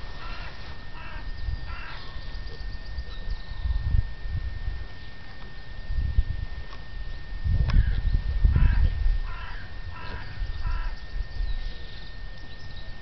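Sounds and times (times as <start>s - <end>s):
crow cawing: 0.1s - 2.3s, 7.8s - 11.1s.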